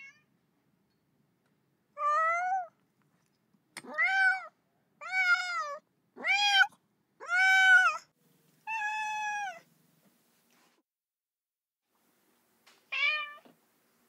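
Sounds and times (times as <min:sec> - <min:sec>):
cat meowing: 0:02.0 - 0:02.7, 0:03.8 - 0:09.7, 0:12.9 - 0:13.5.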